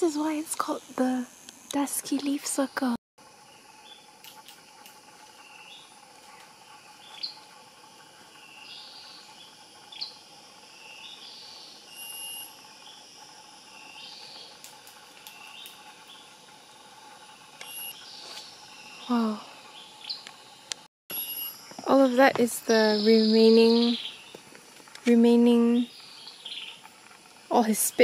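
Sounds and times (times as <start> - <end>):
insect drone: 0.0 - 28.0.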